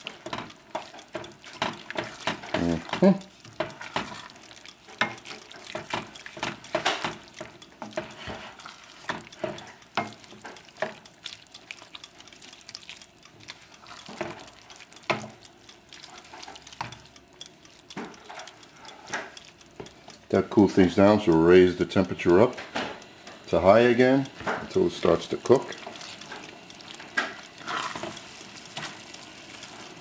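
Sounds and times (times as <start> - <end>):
wooden spoon scraping a pan: 0.0 - 11.0, 24.4 - 29.0.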